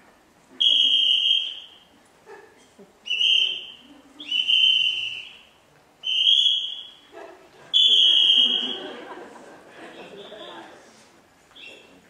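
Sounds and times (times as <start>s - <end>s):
high-pitched whistle blasts: 0.6s - 1.9s, 3.1s - 7.0s, 7.8s - 8.9s.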